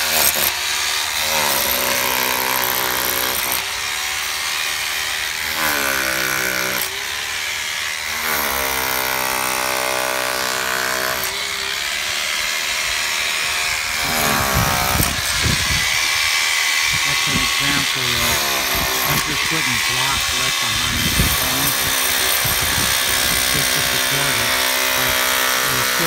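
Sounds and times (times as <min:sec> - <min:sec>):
power tool motor whining: 0:00.0 - 0:26.0.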